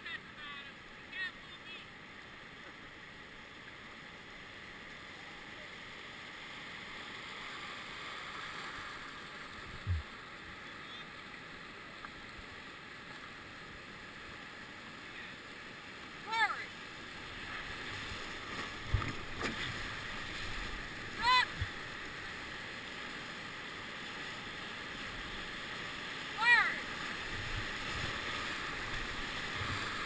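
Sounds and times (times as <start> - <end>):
dull low thump: 9.7 - 10.1
river rapids rushing: 26.2 - 30.0.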